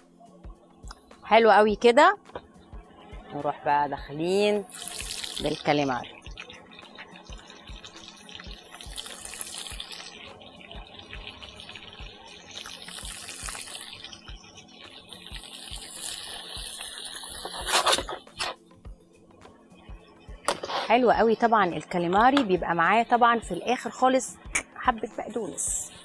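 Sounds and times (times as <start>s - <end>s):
food sizzling in oil: 4.2s - 18.7s.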